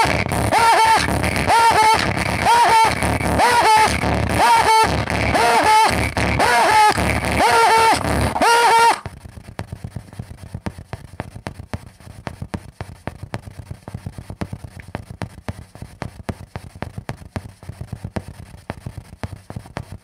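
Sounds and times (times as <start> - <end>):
loud repeating pitched sound: 0.0 - 10.5
low hum: 0.0 - 19.7
faint irregular clicks and crackles: 8.9 - 20.0.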